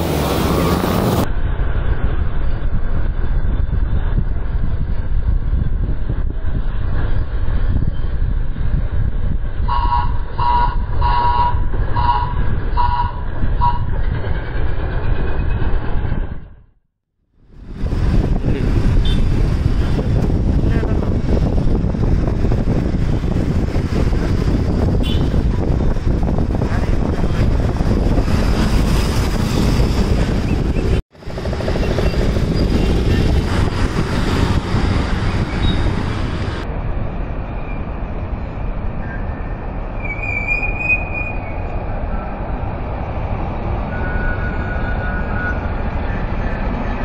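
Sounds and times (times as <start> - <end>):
wind rush on microphone: 0.0 - 16.6, 17.4 - 47.0
road noise rumble: 0.0 - 47.0.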